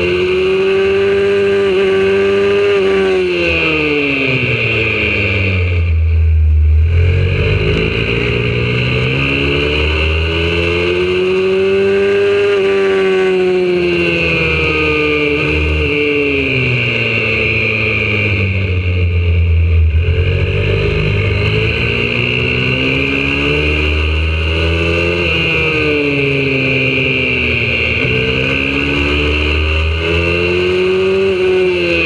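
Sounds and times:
pit bike engine revving: 0.0 - 32.0.

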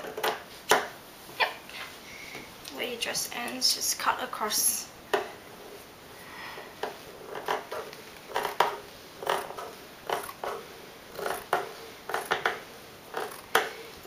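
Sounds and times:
scissors snipping fabric: 11.2 - 11.5.

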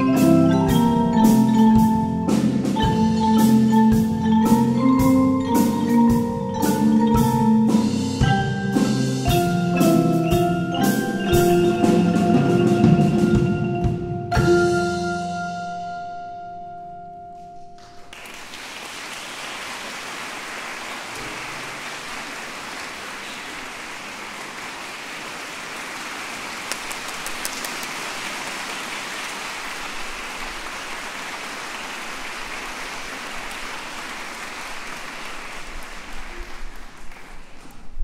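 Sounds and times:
marimba and xylophone note ringing: 0.0 - 17.8
audience applauding: 17.8 - 37.7.

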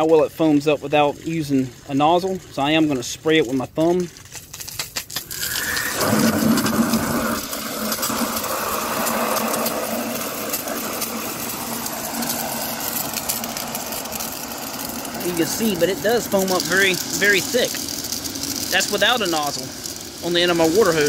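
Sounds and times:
hose water jet into bucket: 5.1 - 21.0.

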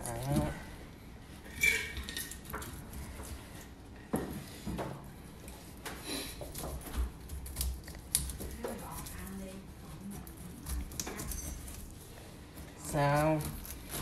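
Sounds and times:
knife scraping: 1.4 - 3.7, 6.2 - 14.0
knife slicing pineapple rind: 6.3 - 14.0.

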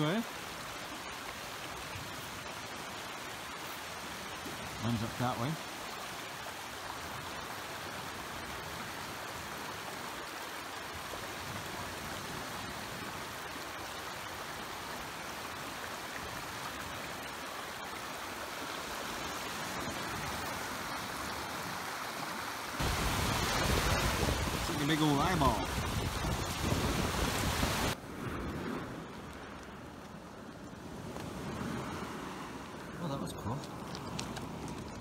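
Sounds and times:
stream running over stones: 0.0 - 28.0, 29.1 - 35.0
waves on pebble beach: 0.0 - 35.0
wind on microphone: 22.8 - 30.0.

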